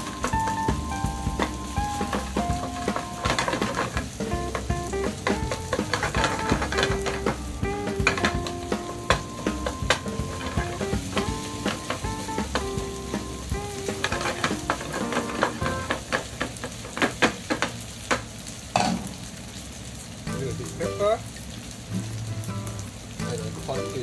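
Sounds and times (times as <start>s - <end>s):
spatula scraping and knocking pan: 0.0s - 18.2s
rice sizzling in frying pan: 0.0s - 24.0s.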